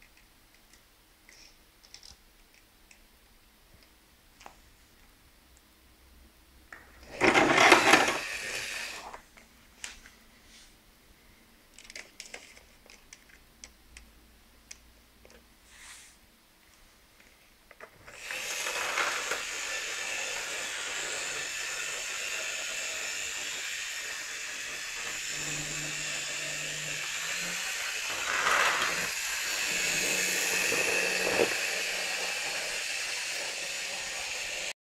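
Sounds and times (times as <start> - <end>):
model train motor whirring: 7.1 - 9.2, 18.1 - 34.7.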